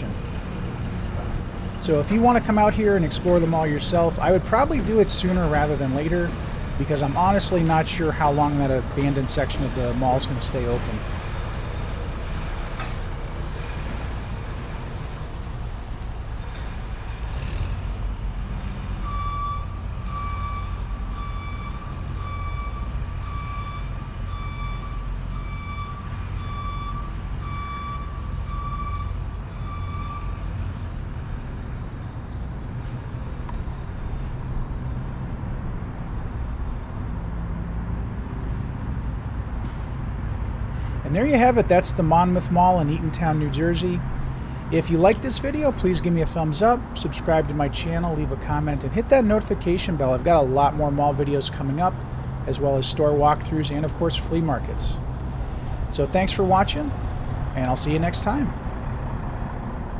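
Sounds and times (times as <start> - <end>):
vehicle reversing alarm beeping: 1.8 - 15.2, 18.9 - 32.4.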